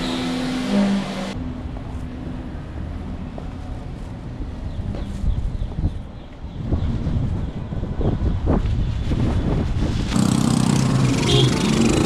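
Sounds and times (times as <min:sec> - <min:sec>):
wind buffeting microphone: 0:04.2 - 0:11.3.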